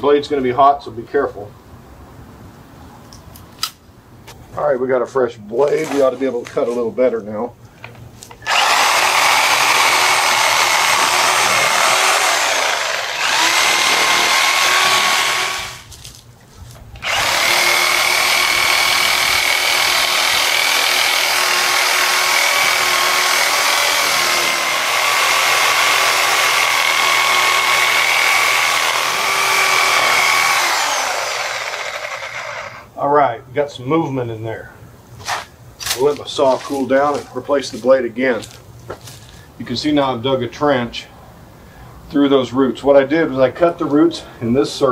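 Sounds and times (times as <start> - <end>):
reciprocating saw cutting roots: 8.4 - 16.0, 17.0 - 32.9.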